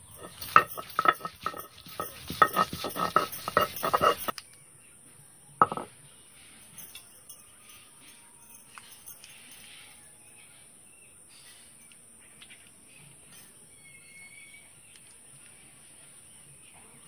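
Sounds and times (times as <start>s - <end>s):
stone roller crushing garlic: 0.0s - 4.3s, 5.6s - 5.9s
sharp stone clink: 0.0s - 4.4s, 5.6s - 5.9s.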